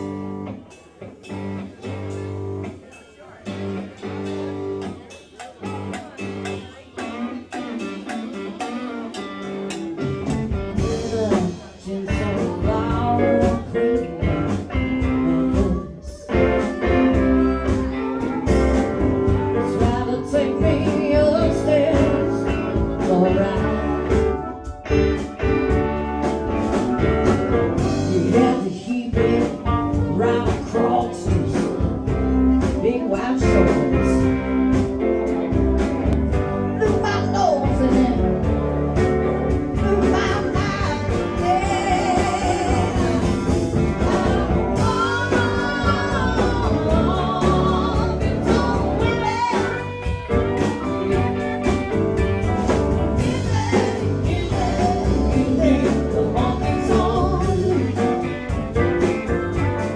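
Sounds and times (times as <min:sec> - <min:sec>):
live blues band playing: 0:00.0 - 0:59.9
woman singing: 0:10.8 - 0:25.2, 0:27.2 - 0:34.8, 0:36.7 - 0:38.7, 0:39.7 - 0:51.8, 0:52.5 - 0:58.4.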